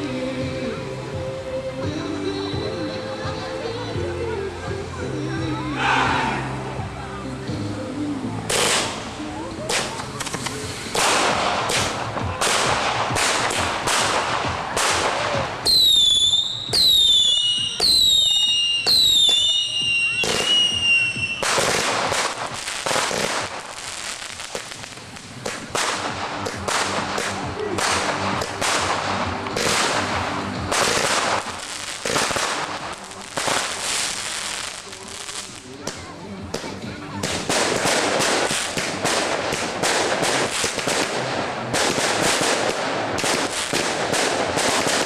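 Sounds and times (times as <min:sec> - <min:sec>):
fireworks bangs: 0:08.5 - 0:45.0
firework whistles falling in pitch: 0:15.7 - 0:21.6.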